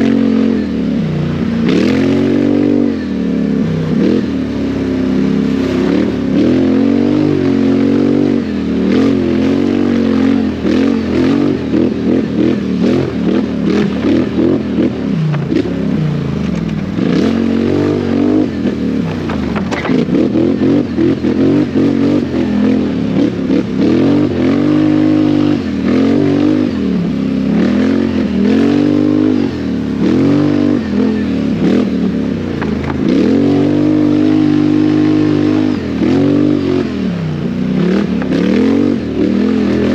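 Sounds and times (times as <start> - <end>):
atv engine revving: 0.0 - 39.9
knocks and rattles: 19.1 - 20.1.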